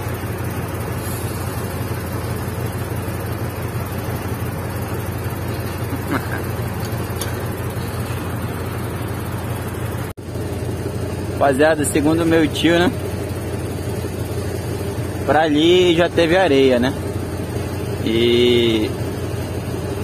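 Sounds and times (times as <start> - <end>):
diesel loader engine under load: 0.0 - 20.0.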